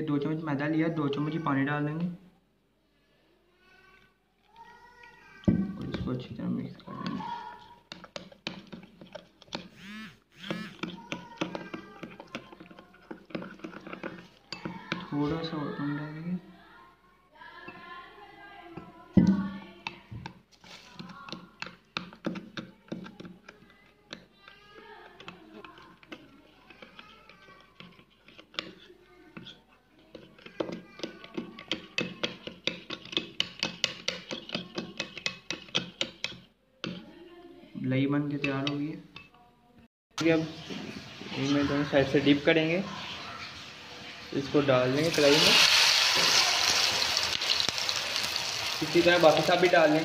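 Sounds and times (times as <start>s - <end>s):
metal spoon scraping glass bowl: 7.9s - 15.3s, 25.1s - 37.0s.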